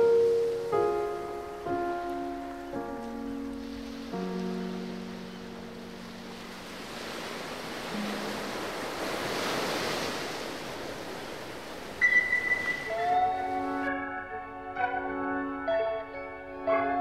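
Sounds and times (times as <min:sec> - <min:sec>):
soft music notes: 0:00.0 - 0:06.8, 0:07.8 - 0:08.8, 0:12.0 - 0:17.0.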